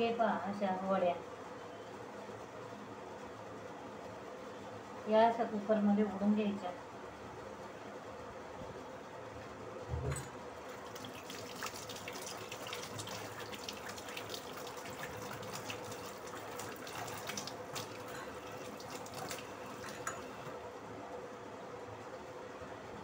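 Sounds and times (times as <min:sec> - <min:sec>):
faint steady hum: 0:00.0 - 0:23.0
water running from a tap: 0:10.7 - 0:20.6.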